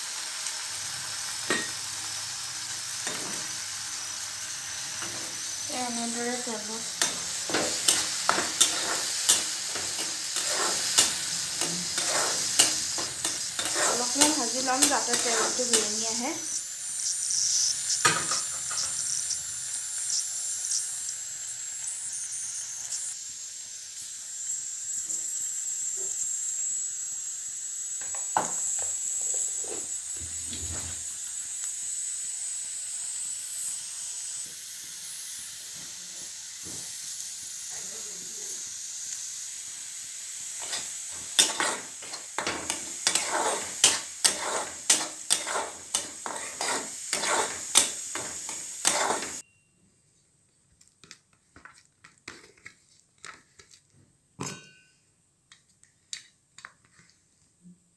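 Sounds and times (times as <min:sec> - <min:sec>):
food sizzling in oil: 0:00.0 - 0:49.5
spatula scraping pan: 0:04.7 - 0:16.6, 0:40.6 - 0:49.4.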